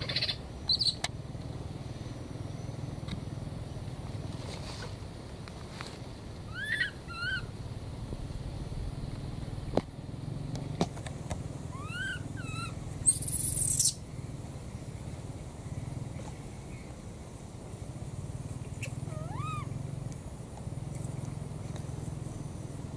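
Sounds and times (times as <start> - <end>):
baby monkey crying: 0.0 - 1.0, 6.5 - 7.5, 11.7 - 13.9, 18.8 - 19.8
low rumble: 7.5 - 10.6.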